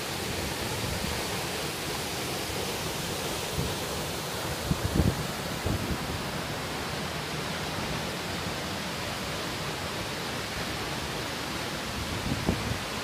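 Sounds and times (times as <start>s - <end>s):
waterfall and river rushing: 0.0s - 13.0s.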